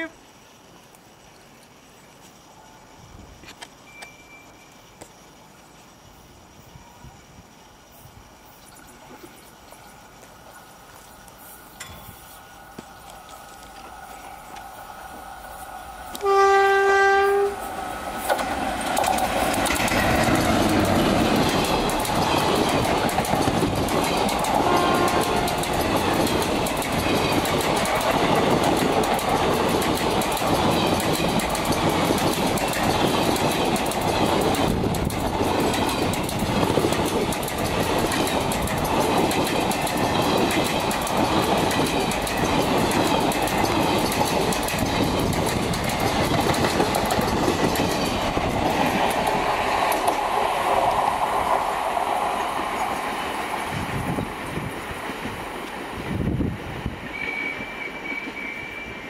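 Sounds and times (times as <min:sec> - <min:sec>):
train passing with loud rumble: 0:05.4 - 0:59.0
wheels clattering over rail joints: 0:17.7 - 0:55.2.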